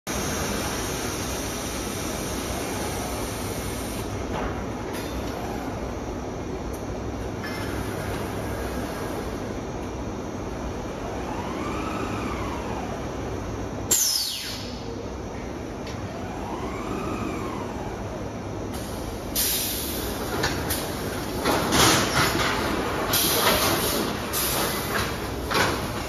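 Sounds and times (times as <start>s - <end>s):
steady machine hum: 0.1s - 26.0s
robot motor whine rising and falling: 10.9s - 13.4s, 15.9s - 18.4s
sudden sharp sound with falling whine: 11.3s - 15.3s.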